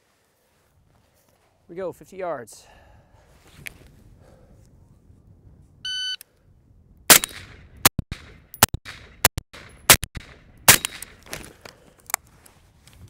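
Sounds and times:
shot timer beep: 0:05.9 - 0:06.2
rifle shots echoing: 0:07.1 - 0:11.2.

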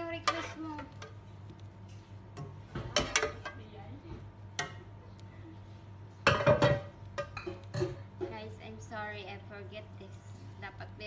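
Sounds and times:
low steady hum: 0:00.0 - 0:11.0
pot and utensils clinking: 0:02.4 - 0:03.6.

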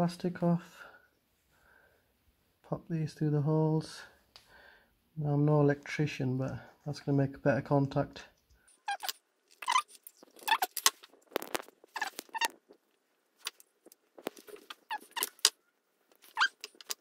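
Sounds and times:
crimp tool squeaking: 0:08.7 - 0:12.7, 0:14.5 - 0:15.6, 0:16.2 - 0:17.0.

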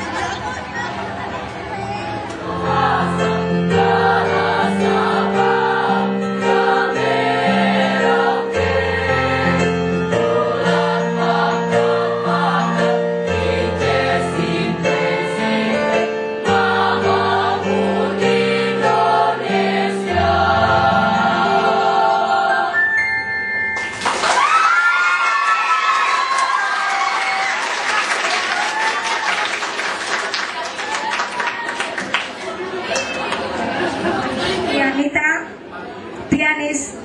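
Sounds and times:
choir singing in parts: 0:02.3 - 0:23.0.

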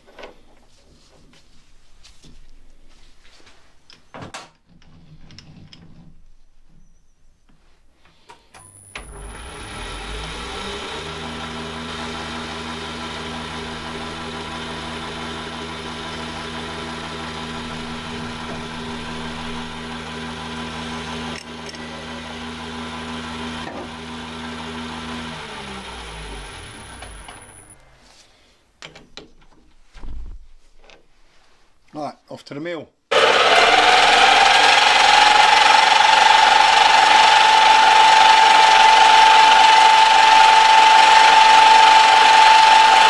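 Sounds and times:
metal lathe motor humming: 0:08.9 - 0:27.8, 0:33.1 - 0:43.0.

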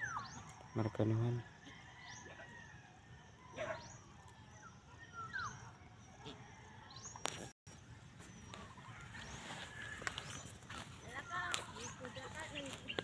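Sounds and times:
high bird chirps: 0:00.0 - 0:01.2, 0:04.6 - 0:05.8.

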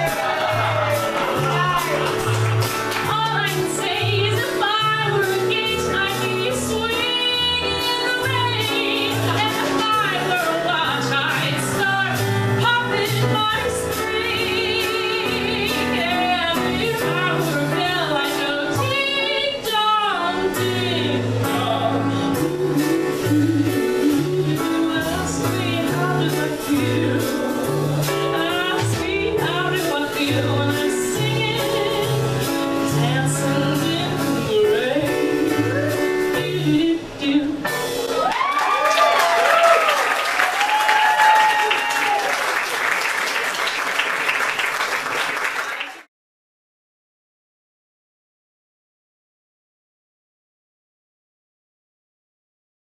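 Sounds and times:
small band playing: 0:00.0 - 0:45.6
woman singing into a microphone: 0:03.1 - 0:37.9.

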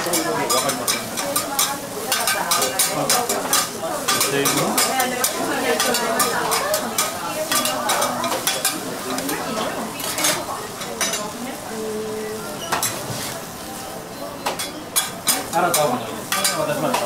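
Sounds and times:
food sizzling on griddle: 0:00.0 - 0:17.0
metal spatulas clicking and scraping: 0:00.1 - 0:09.3, 0:14.6 - 0:17.0.

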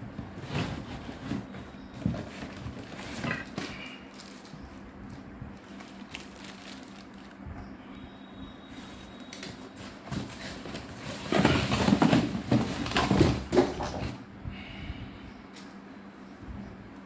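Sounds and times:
cardboard flaps scraping and rustling: 0:00.0 - 0:04.5, 0:08.8 - 0:14.2
faint steady hum: 0:00.0 - 0:17.0.

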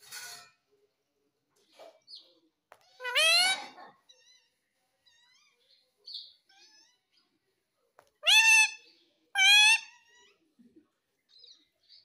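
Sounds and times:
parakeet chirping and calling: 0:03.0 - 0:03.8, 0:08.2 - 0:08.8, 0:09.4 - 0:09.9.

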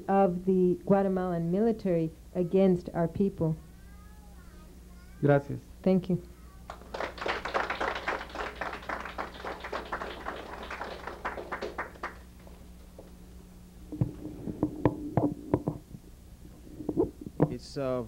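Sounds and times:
audience clapping: 0:06.6 - 0:12.7
knocks and thumps: 0:13.9 - 0:16.0, 0:16.8 - 0:17.6.

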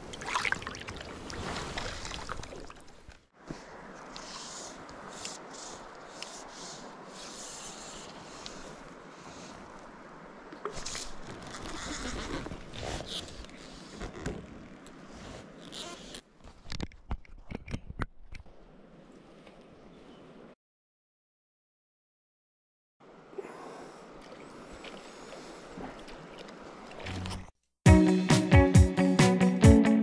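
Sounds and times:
river running over stones: 0:00.0 - 0:11.9.

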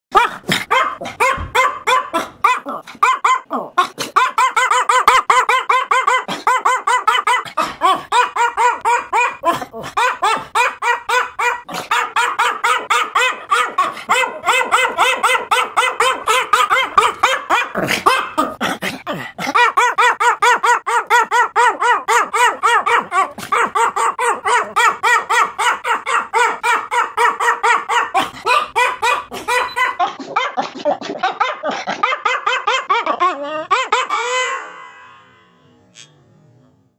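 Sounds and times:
small dog yapping: 0:19.6 - 0:30.0.

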